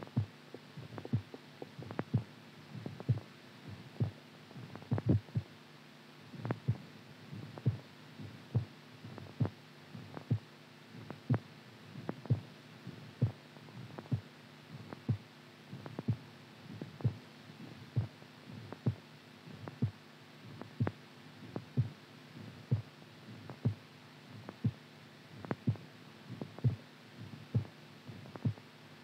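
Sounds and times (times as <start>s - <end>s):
irregular heartbeat thumps: 0.0s - 5.5s, 6.4s - 24.8s, 25.4s - 28.7s
steady low hum: 0.0s - 29.0s.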